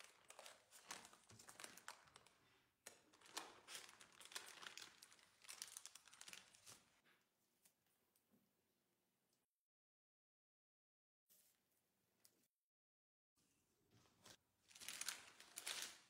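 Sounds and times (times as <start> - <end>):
paper and plastic gloves crinkling: 0.0 - 7.0, 14.0 - 16.0.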